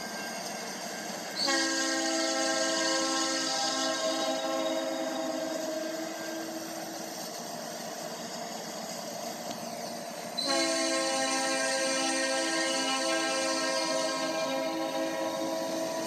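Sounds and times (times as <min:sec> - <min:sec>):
train rumbling: 0:00.0 - 0:16.0
locomotive air horn blast: 0:01.4 - 0:07.0, 0:10.4 - 0:16.0.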